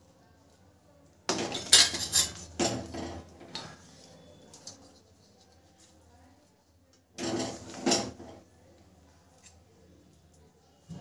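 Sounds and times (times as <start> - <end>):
metal spatula clattering on steel: 1.3 - 3.0.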